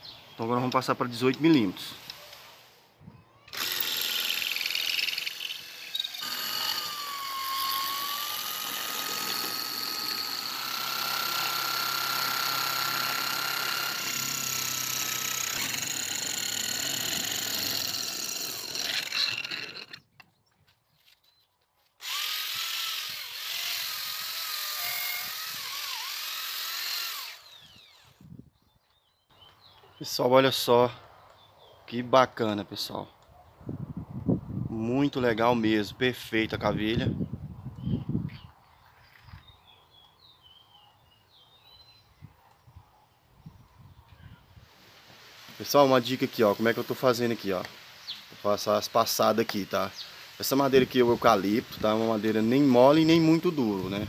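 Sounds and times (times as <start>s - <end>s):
electric drill shaving wood: 3.5s - 20.0s, 22.0s - 28.2s.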